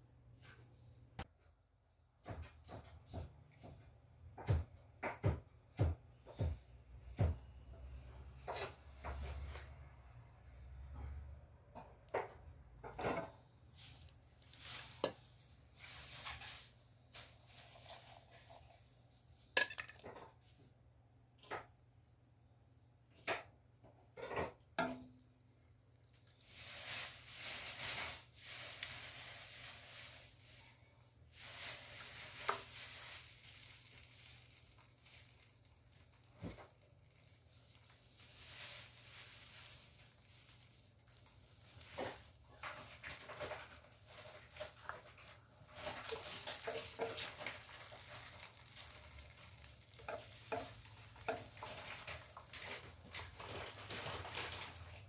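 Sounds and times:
rustling: 12.1 - 19.6, 25.4 - 55.0
fish fillets sizzling in oil: 31.3 - 55.0.

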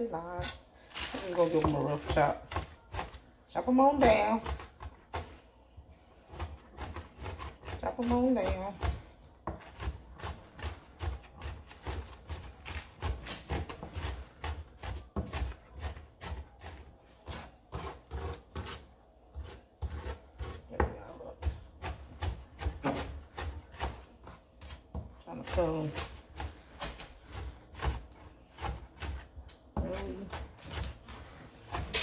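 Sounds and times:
knife chopping on cutting board: 6.3 - 18.8, 19.4 - 32.0.

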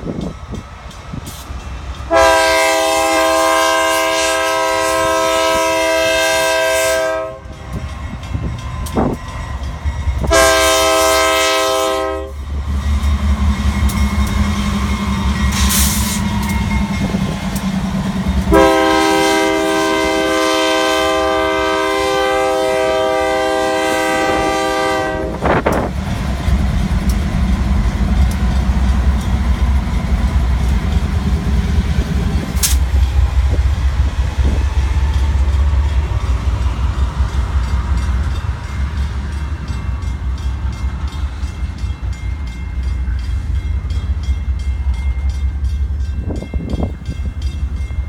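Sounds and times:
train wheels clattering on rails: 0.0 - 4.7, 5.8 - 21.9, 23.0 - 48.0
diesel locomotive engine droning: 0.0 - 48.0
train horn: 2.1 - 7.6, 10.2 - 12.4, 18.4 - 25.9.

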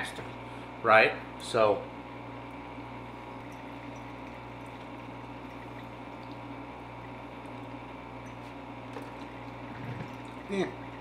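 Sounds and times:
electric still humming and hissing: 0.0 - 11.0
faint dripping ticks: 2.4 - 11.0.

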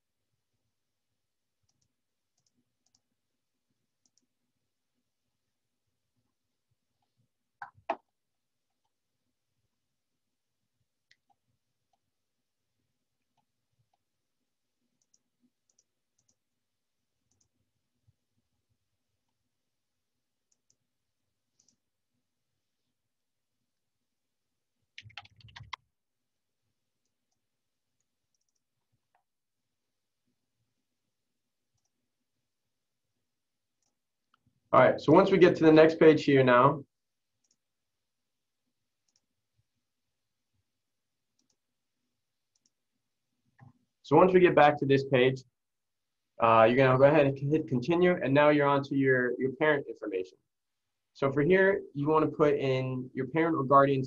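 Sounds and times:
computer mouse clicks: 1.6 - 3.1, 4.0 - 4.3, 15.0 - 16.4, 17.3 - 17.5, 20.5 - 20.8, 21.6 - 21.8, 24.9 - 25.9, 28.0 - 29.3, 33.8 - 34.5, 37.4 - 37.6, 39.0 - 39.3, 41.3 - 41.6, 42.5 - 42.8.

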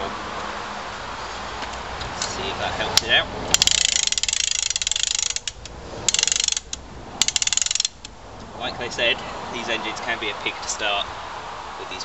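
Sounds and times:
rapid ratchet clicking of crank starter: 3.5 - 8.1.

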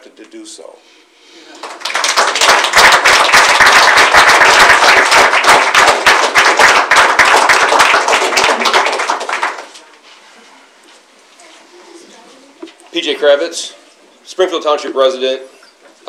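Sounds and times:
audience applauding: 1.5 - 9.8.

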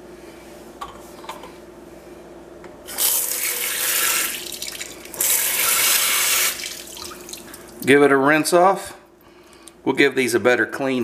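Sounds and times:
sink sprayer running water: 2.9 - 7.6.

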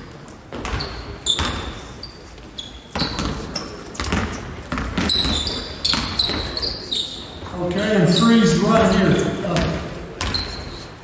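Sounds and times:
sneaker squeaks: 0.0 - 7.5, 8.1 - 11.0
basketball bouncing on wooden floor: 0.5 - 1.8, 2.9 - 6.6, 9.5 - 10.7.

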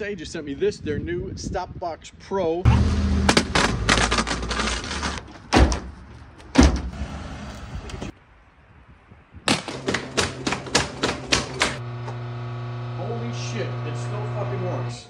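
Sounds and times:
plastic case scraping on asphalt: 3.3 - 5.5
hard knocks: 9.5 - 11.8
sharp knocks: 9.5 - 11.8.

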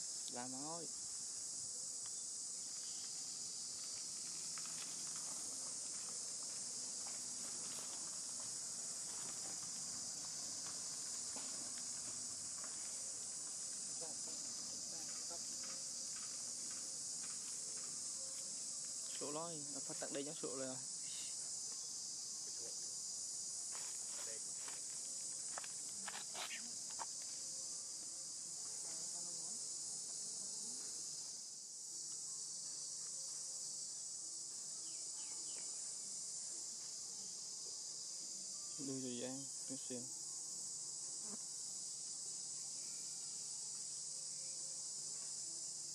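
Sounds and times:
insect chorus drone: 0.0 - 45.9
faint ticks and rustles: 1.9 - 33.6.

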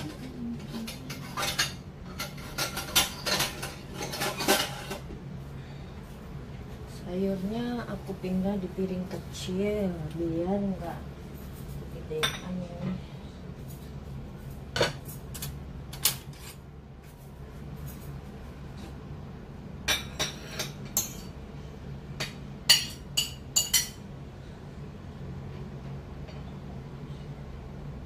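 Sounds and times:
plates and utensils clinking: 0.0 - 5.1
steady low hum: 0.0 - 28.0.

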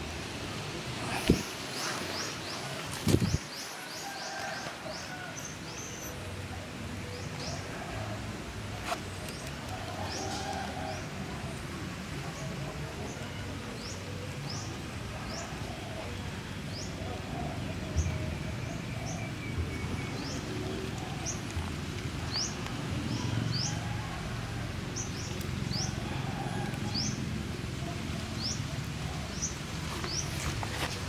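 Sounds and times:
small birds chirping: 27.9 - 31.0.

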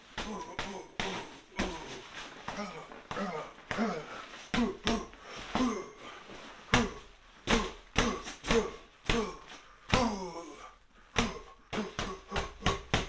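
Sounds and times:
person grunting: 0.0 - 13.0.

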